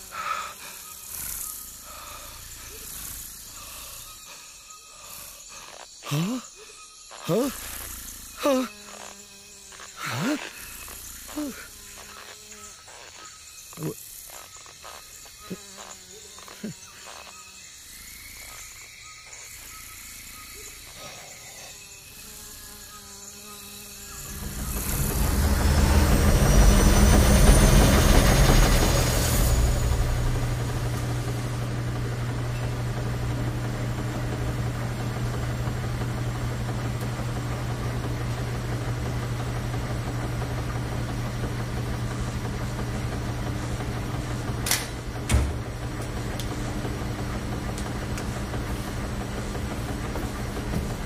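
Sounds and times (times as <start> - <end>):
rushing swirl with whistles: 24.0 - 33.2
washing machine humming: 24.0 - 51.0.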